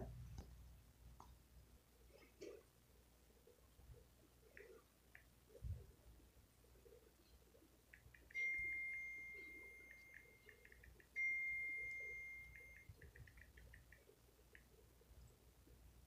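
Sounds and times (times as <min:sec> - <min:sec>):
message sent tone: 0:08.4 - 0:13.4
phone keyboard clicks: 0:12.5 - 0:14.8.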